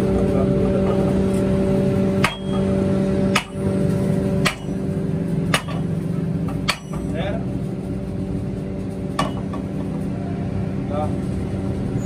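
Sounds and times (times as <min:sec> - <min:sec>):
steady hum: 0:00.0 - 0:11.9
hammer striking hot iron: 0:02.1 - 0:07.2, 0:09.2 - 0:09.9.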